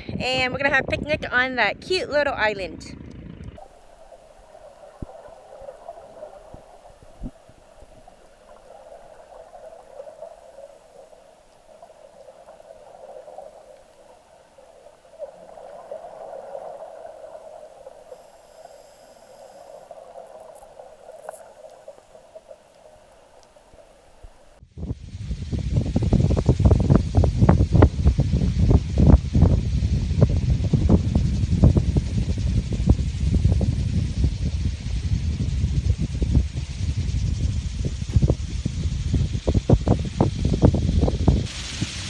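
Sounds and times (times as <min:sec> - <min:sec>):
faint clicks: 0:03.0 - 0:16.0, 0:16.6 - 0:24.6
muffled underwater gurgling: 0:03.5 - 0:24.6.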